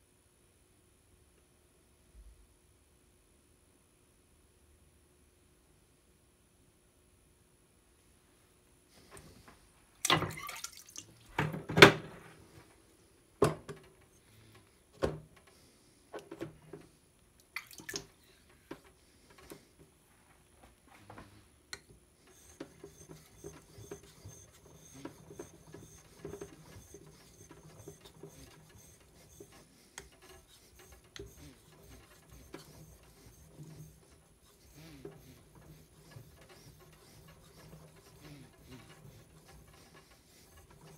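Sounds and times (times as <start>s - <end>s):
water dripping: 10.0s - 11.2s, 17.4s - 18.1s.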